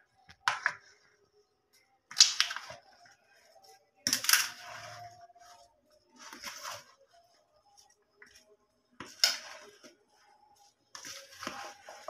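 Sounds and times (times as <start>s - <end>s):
spoon scraping plastic bowl: 10.9s - 12.0s.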